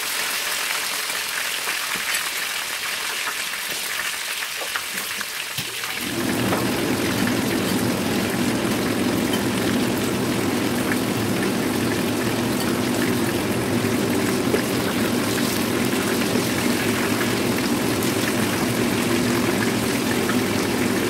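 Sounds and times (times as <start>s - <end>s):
fish sizzling in hot oil: 0.0s - 21.0s
steady low hum: 6.1s - 21.0s.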